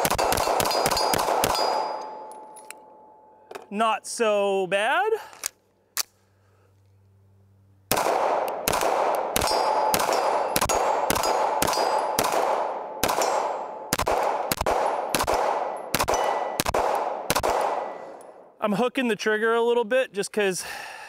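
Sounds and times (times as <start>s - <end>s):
pistol shots ringing: 0.0s - 3.3s, 7.9s - 18.4s.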